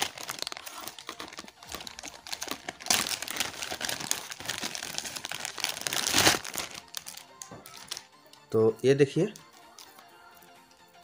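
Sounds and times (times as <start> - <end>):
plastic bag crinkling: 0.0 - 8.1.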